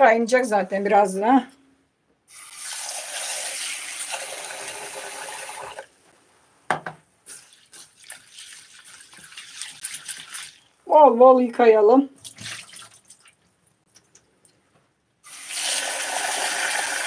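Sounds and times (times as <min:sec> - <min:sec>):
knock: 0:06.7 - 0:07.0
lentils splashing in water: 0:07.2 - 0:10.8, 0:12.2 - 0:14.3.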